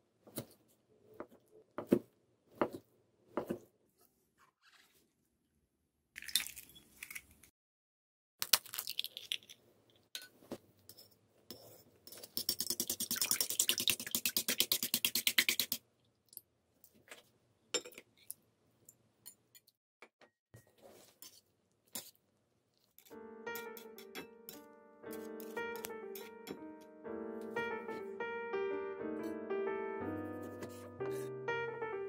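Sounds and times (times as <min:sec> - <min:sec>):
piano music: 0:23.1 - 0:32.0.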